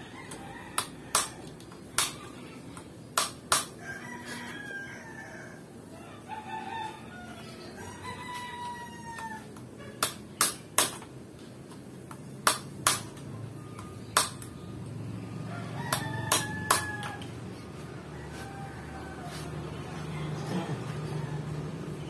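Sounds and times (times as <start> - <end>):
rooster crowing: 0.0 - 1.6, 3.8 - 9.6, 15.2 - 22.0.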